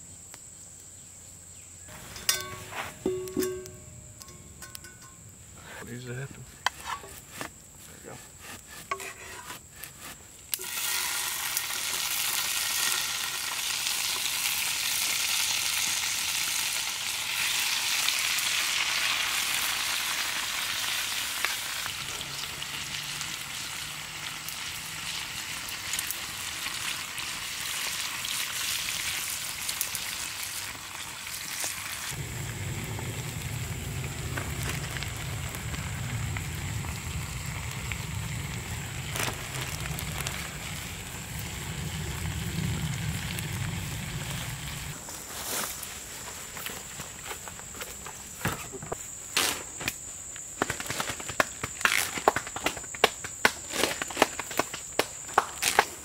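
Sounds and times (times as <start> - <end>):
food sizzling in a hot pan: 10.5 - 44.9
low steady rumble: 32.2 - 45.0.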